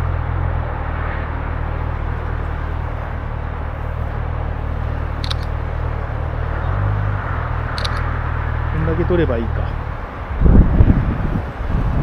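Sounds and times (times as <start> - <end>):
distant traffic: 0.0 - 12.0
sharp clicks: 5.2 - 5.6, 7.7 - 8.1
wind on microphone: 9.7 - 12.0.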